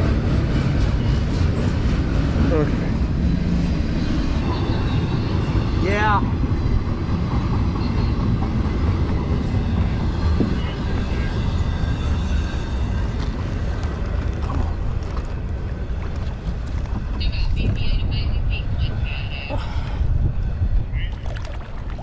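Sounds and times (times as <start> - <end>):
low rumble: 10.0 - 22.0.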